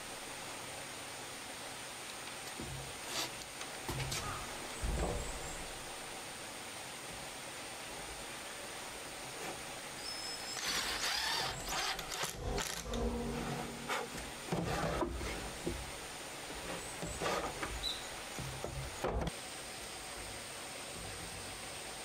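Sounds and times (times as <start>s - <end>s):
objects knocking and scraping: 12.1s - 19.3s.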